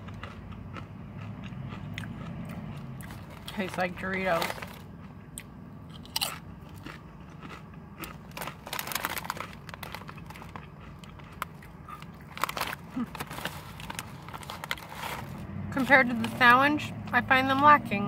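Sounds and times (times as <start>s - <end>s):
chips crunching while chewed: 0.0s - 16.5s
chip bag rustling: 3.0s - 4.9s, 8.0s - 16.4s.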